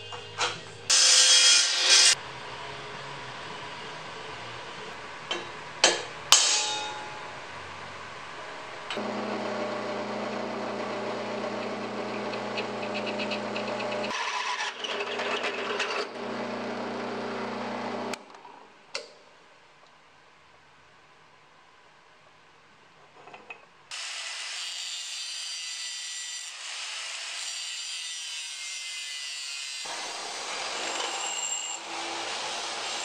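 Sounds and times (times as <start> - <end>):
metal clanks: 5.3 - 7.2
drill press motor humming: 9.0 - 14.1, 16.1 - 18.2.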